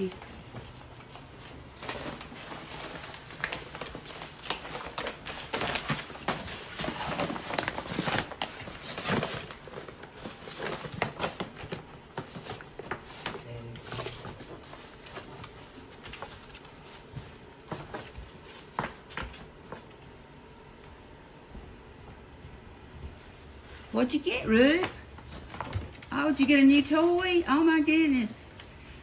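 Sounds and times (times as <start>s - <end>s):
dog ripping wrapping paper: 0.0s - 19.8s.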